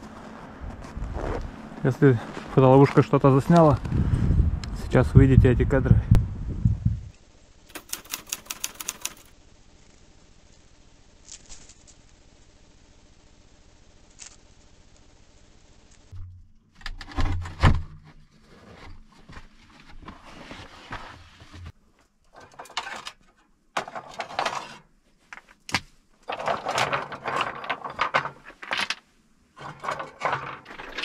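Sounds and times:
stones clattering against metal stove: 26.2 - 29.0, 29.6 - 31.0.

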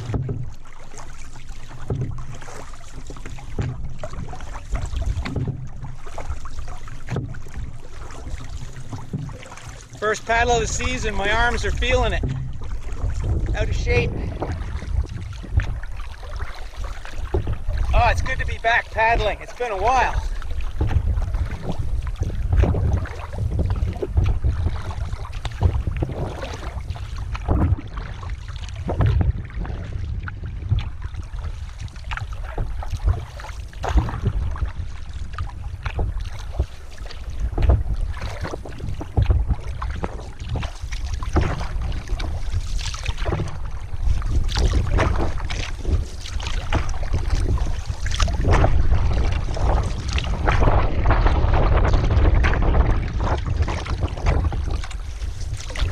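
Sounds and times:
paddle knocking on canoe: 0.0 - 55.9
paddle splashing: 0.0 - 55.9
low rumble: 9.7 - 31.9.

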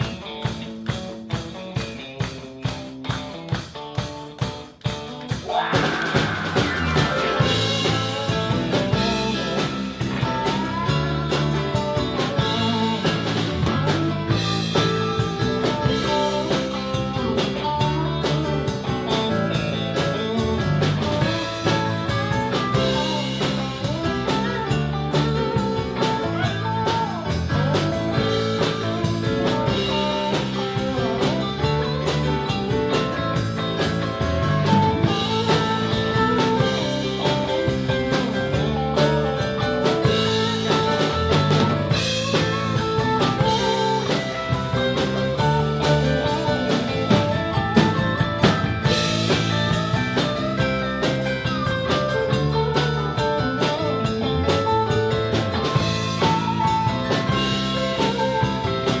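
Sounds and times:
blues-rock band playing: 0.0 - 59.0.

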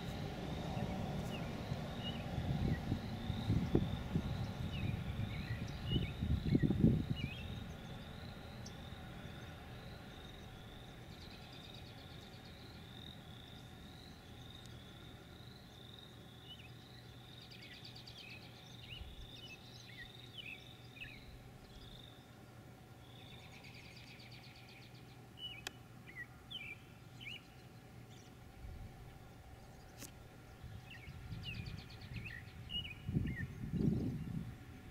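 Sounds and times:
bird calls: 0.0 - 22.4, 23.0 - 28.4, 29.2 - 34.4.

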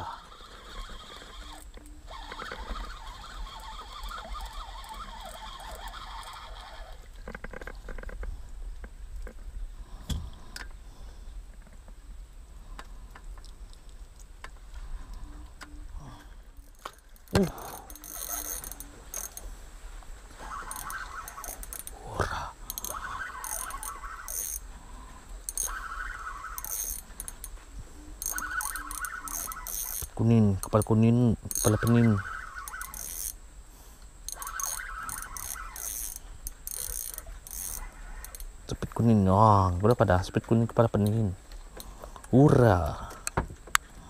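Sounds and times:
fishing reel gears whirring: 0.0 - 8.2, 16.1 - 19.5, 20.3 - 33.4, 34.2 - 38.6.

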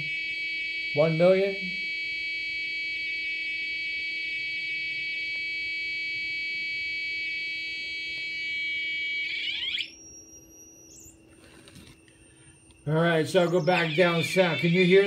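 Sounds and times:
faint thin whine: 0.0 - 15.0
buzzy electronic tone: 6.4 - 11.3, 12.3 - 15.0.

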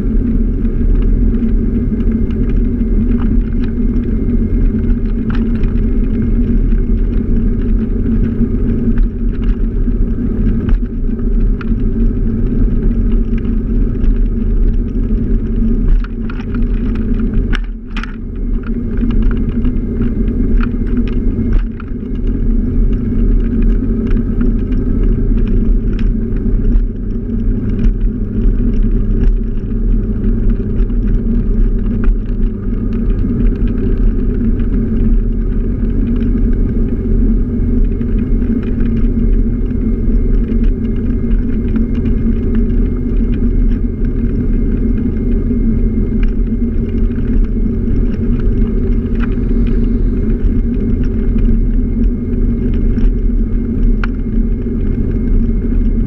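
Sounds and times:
scooter engine rumbling: 0.0 - 56.0
wind and road noise: 0.0 - 56.0
small clicks and rattles: 0.3 - 56.0.

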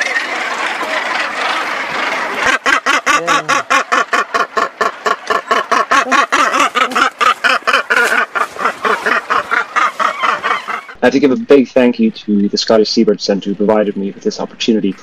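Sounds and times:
gannet harsh grating calls: 0.0 - 11.0
background hiss: 5.0 - 15.0.

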